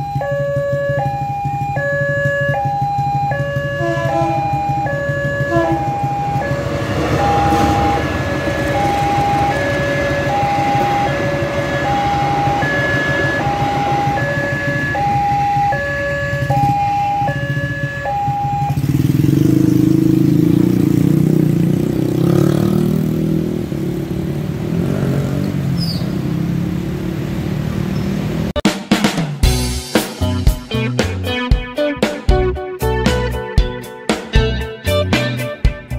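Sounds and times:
two-tone crossing alarm chime: 0.0s - 19.0s
motorcycle and car engines revving: 0.1s - 28.6s
train rumbling past: 3.1s - 28.5s.

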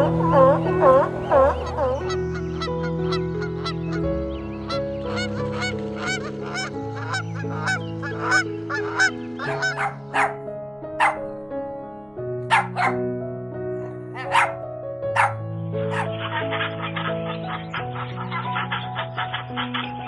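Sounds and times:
waterfowl honking: 0.0s - 10.4s, 11.0s - 11.3s, 12.5s - 13.0s, 14.2s - 14.6s, 15.2s - 20.0s
slow held chords music: 0.0s - 20.0s
dog barking: 9.4s - 10.4s, 11.0s - 11.3s, 12.5s - 13.0s, 14.2s - 16.7s.

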